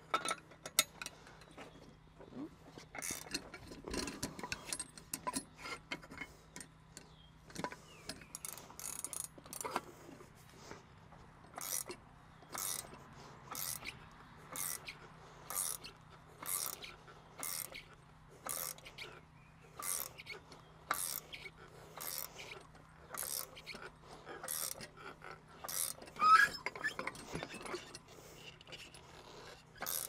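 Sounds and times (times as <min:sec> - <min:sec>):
ratchet wrench clicking: 0:08.3 - 0:09.8, 0:11.6 - 0:19.1, 0:19.8 - 0:22.5, 0:23.1 - 0:23.8, 0:24.4 - 0:24.9, 0:25.6 - 0:28.0, 0:29.8 - 0:30.0.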